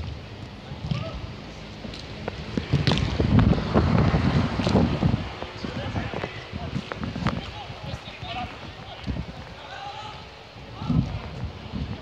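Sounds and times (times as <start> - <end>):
wind rumble on microphone: 0.0 - 12.0
distant shout: 0.8 - 1.3, 9.5 - 11.1.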